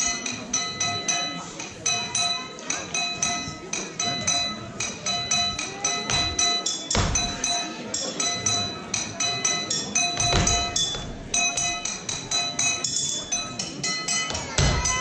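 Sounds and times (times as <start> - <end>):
metal hand percussion strikes: 0.0 - 15.0
deep heavy thumps: 6.1 - 7.4, 10.2 - 11.5.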